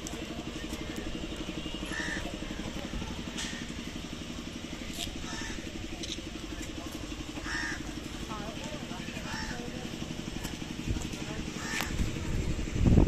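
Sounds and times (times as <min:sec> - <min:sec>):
engine running with rapid pulse: 0:00.0 - 0:13.0.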